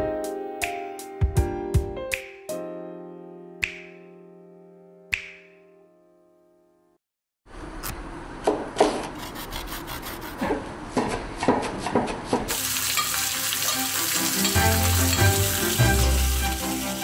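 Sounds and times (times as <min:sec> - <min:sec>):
knife chopping on wooden board: 0:10.4 - 0:12.6
frying sizzle: 0:12.5 - 0:17.0.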